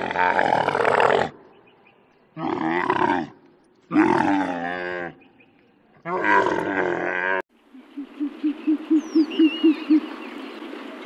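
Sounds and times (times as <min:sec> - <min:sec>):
owl hooting: 0:07.8 - 0:10.1.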